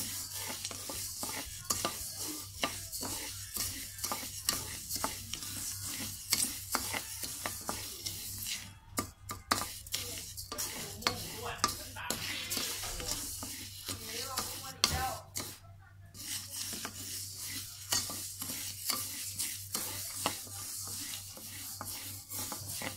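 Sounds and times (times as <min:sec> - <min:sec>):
rice grains rustling and hissing: 0:00.0 - 0:08.7, 0:16.2 - 0:22.9
wooden spatula scraping a wok: 0:00.0 - 0:22.9.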